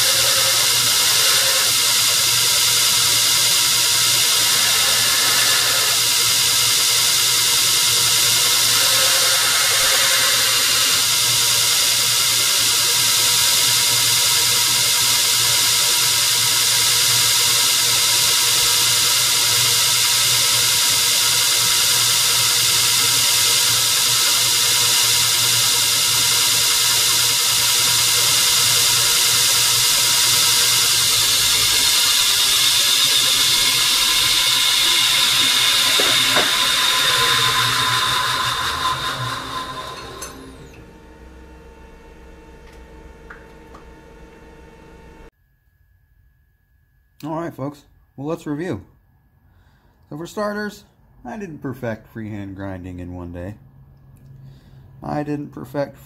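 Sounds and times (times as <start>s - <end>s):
belt grinder hiss: 0.0s - 40.8s
motor hum: 0.0s - 45.3s.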